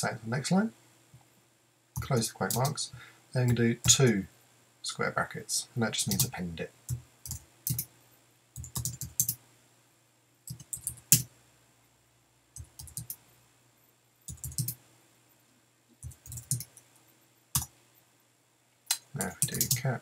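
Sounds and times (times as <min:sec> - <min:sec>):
keyboard typing: 0:06.1 - 0:06.3, 0:06.9 - 0:07.9, 0:08.6 - 0:09.4, 0:10.5 - 0:11.3, 0:12.6 - 0:13.2, 0:14.3 - 0:14.8, 0:16.0 - 0:16.9, 0:17.5 - 0:17.7, 0:18.9 - 0:19.9.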